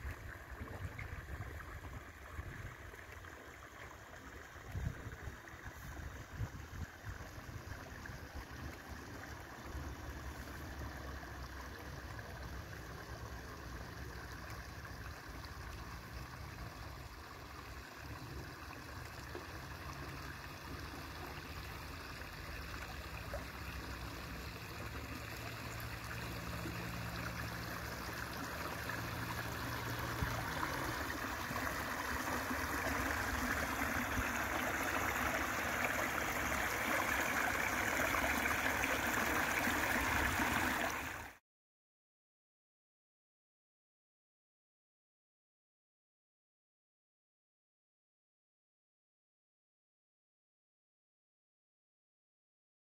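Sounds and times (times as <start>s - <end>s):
stream water trickling and splashing: 0.0s - 41.4s.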